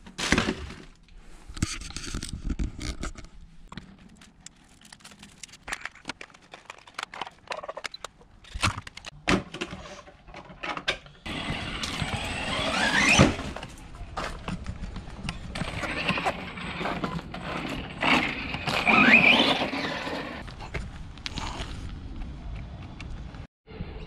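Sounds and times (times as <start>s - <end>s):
clicks and knocks of handling: 1.6s - 9.2s
electric motor whining: 11.3s - 13.4s.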